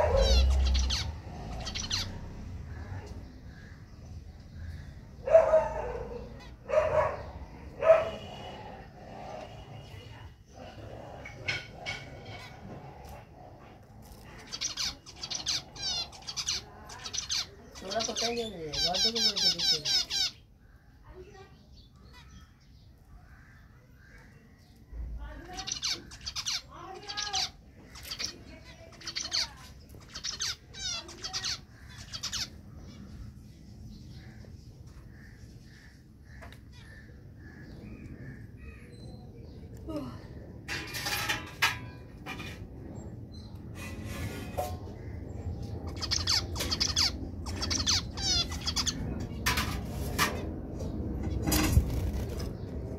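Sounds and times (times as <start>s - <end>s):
finch singing: 0.0s - 8.5s, 14.0s - 20.5s, 21.3s - 39.8s, 43.3s - 50.1s.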